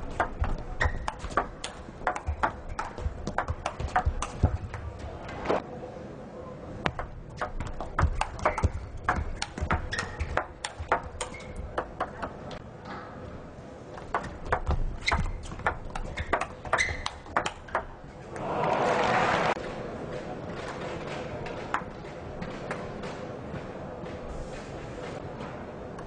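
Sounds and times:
applause: 18.4 - 19.6.

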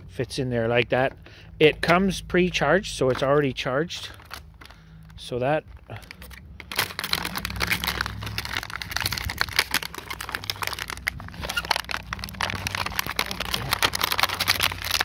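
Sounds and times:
plastic packaging crinkling: 3.9 - 15.0.

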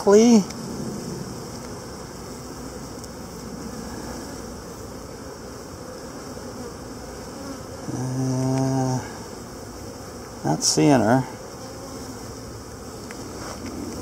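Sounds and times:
bees buzzing: 0.0 - 14.0.

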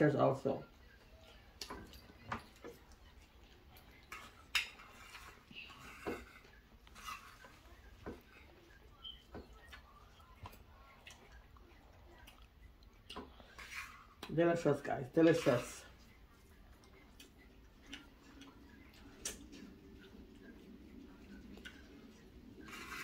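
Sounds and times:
spoons clinking on plates: 3.9 - 8.2.

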